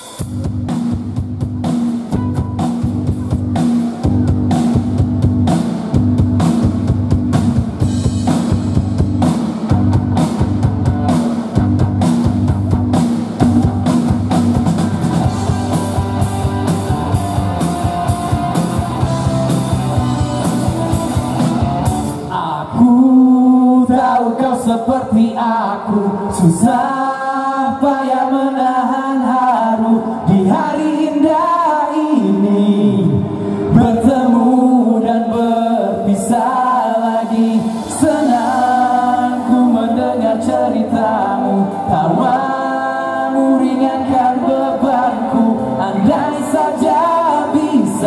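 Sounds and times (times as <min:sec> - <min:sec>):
drum kit: 0:00.0 - 0:22.4, 0:37.3 - 0:40.0
electric guitars: 0:00.0 - 0:22.8, 0:37.3 - 0:48.0
bass guitar: 0:00.0 - 0:23.1, 0:37.6 - 0:48.0
keyboard: 0:00.0 - 0:23.9
vocals singing: 0:22.1 - 0:48.0.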